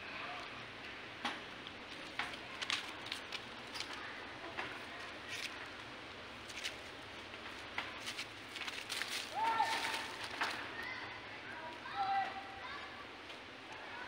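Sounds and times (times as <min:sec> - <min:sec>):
dry leaves crackling: 0:01.6 - 0:12.0.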